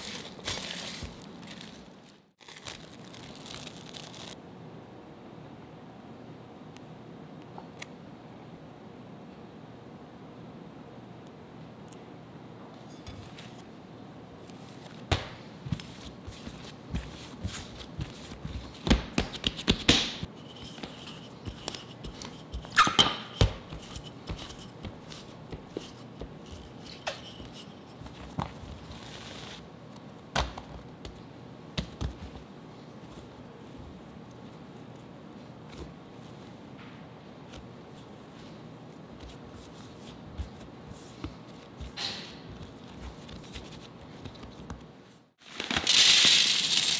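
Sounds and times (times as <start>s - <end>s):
hands patting dough: 14.8s - 29.2s.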